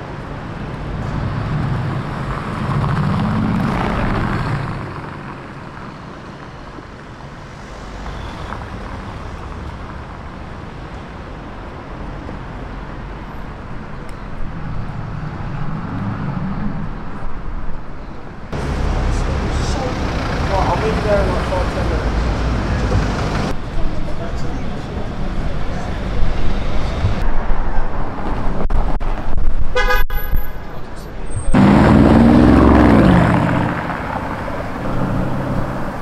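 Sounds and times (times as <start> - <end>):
steady traffic noise: 0.0 - 36.0
car engine passing: 18.5 - 23.6, 31.4 - 36.0.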